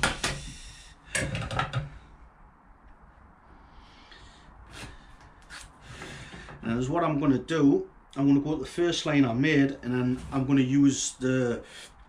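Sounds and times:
tools clicking and knocking on wood: 1.2 - 1.9.

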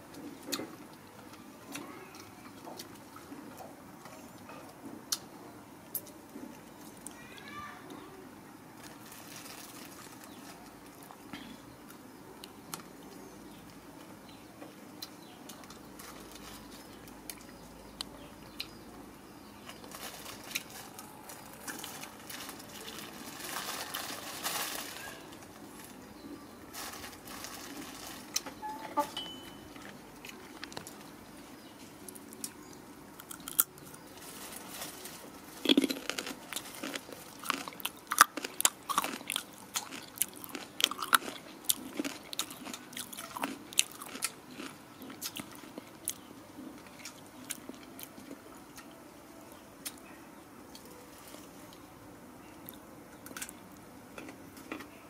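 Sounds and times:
plastic bag crinkling: 8.8 - 11.0, 19.7 - 26.0, 26.7 - 28.6, 33.3 - 39.2.

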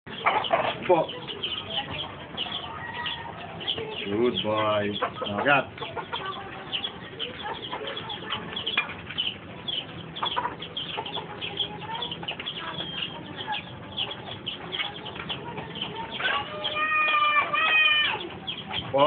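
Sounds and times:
chickens clucking: 0.1 - 19.0
small birds chirping: 0.1 - 19.0.

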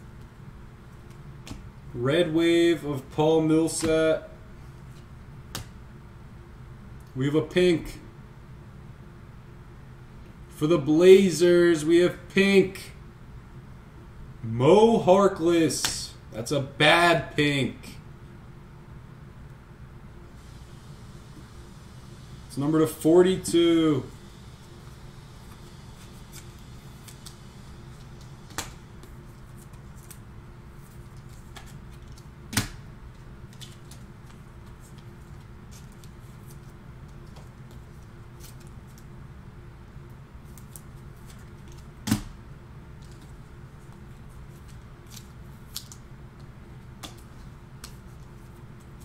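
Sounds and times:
steady low hum: 0.0 - 49.0
trading cards flipped by hand: 25.5 - 30.2, 30.8 - 32.8, 43.0 - 49.0.

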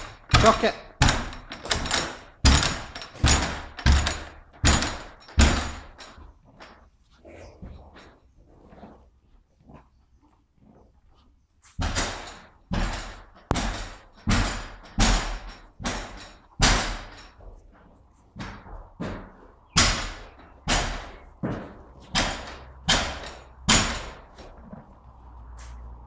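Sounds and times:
horse banging on stable door: 0.0 - 6.8, 11.8 - 17.6, 18.3 - 24.8.

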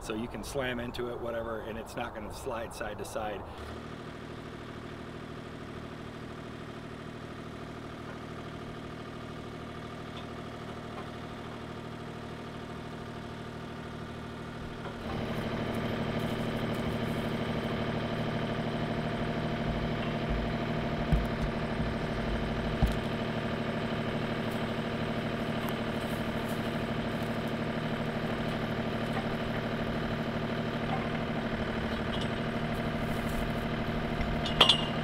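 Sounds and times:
excavator diesel engine idling: 3.5 - 35.0
low thumps: 19.5 - 23.3.

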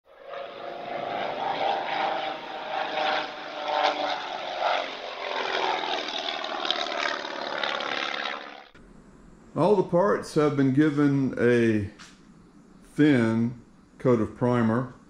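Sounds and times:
propeller aircraft engine drone: 0.1 - 11.5.

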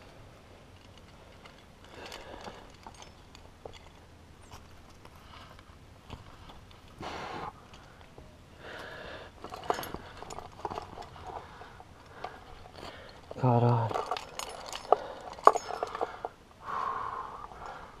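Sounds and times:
metal gear clinking: 0.8 - 5.0, 9.4 - 16.4
heavy breathing: 1.8 - 3.0, 7.0 - 18.0.

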